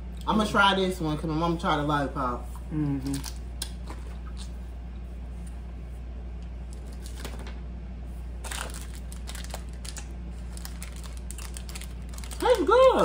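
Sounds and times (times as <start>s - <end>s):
steady low hum: 0.0s - 13.0s
packaging crinkling: 6.7s - 7.5s, 8.4s - 13.0s.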